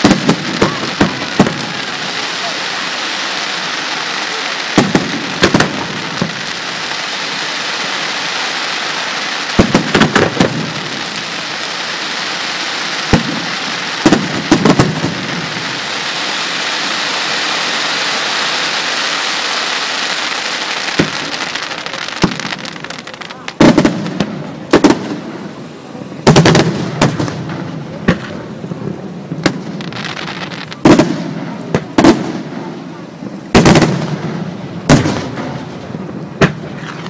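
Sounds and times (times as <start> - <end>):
steady hiss: 0.0 - 37.0
firework shells bursting: 9.3 - 11.4.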